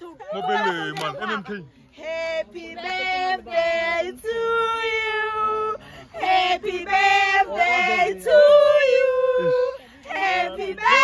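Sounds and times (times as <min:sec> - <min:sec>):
women singing unaccompanied: 0:01.9 - 0:11.0.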